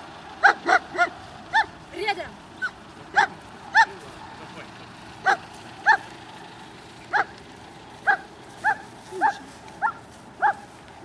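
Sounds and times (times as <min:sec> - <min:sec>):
dog barking: 0:00.4 - 0:01.7, 0:02.6 - 0:04.0, 0:05.2 - 0:06.1, 0:07.1 - 0:07.3, 0:08.0 - 0:10.7.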